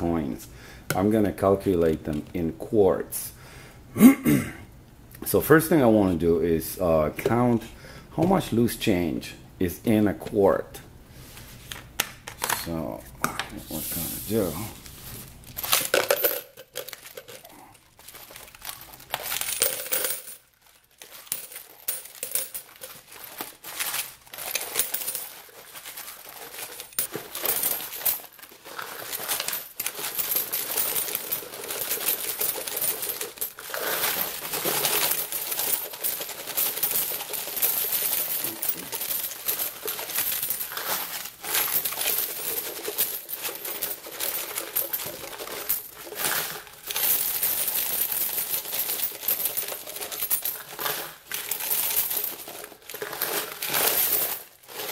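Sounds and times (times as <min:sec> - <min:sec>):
coins pouring into container: 0:15.6 - 0:54.9.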